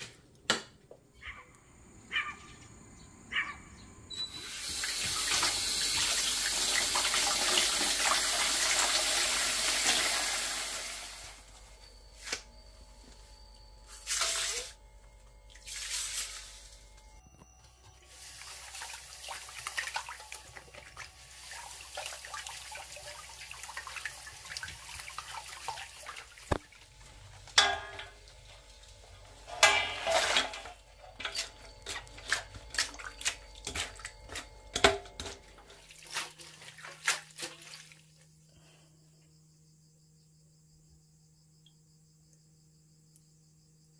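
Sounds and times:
hand stirring water in a bowl: 31.2s - 38.0s
water splashing: 35.7s - 38.1s.

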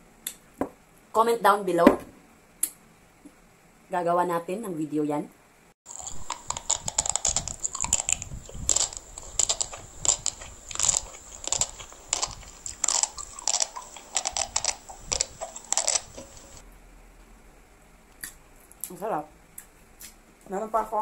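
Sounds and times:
chewing with mouth smacks: 5.9s - 16.6s
slurping noodles: 5.9s - 16.6s.

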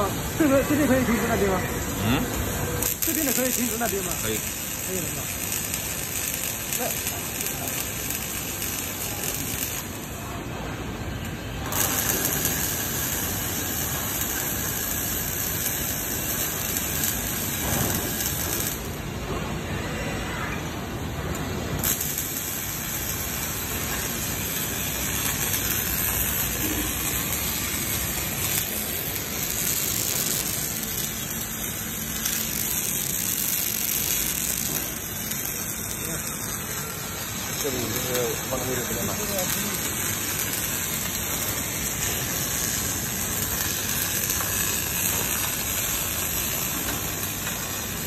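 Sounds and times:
welding arc frying hiss: 0.0s - 19.4s, 21.2s - 48.0s.

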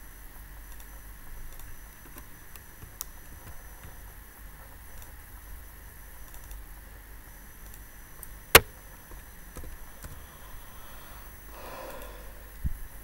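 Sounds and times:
low room hiss: 0.0s - 13.0s.

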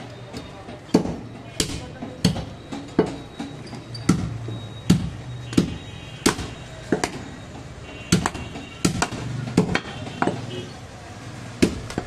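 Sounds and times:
cleaver chopping on wooden block: 0.9s - 3.2s, 4.1s - 7.2s, 8.1s - 10.5s, 11.6s - 12.0s.

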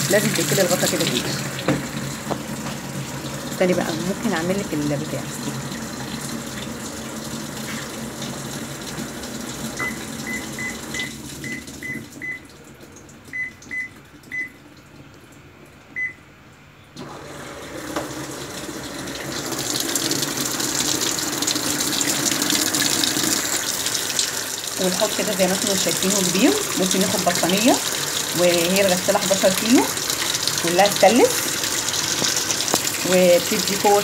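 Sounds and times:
water pouring into washing machine: 0.0s - 16.1s, 17.0s - 34.0s.

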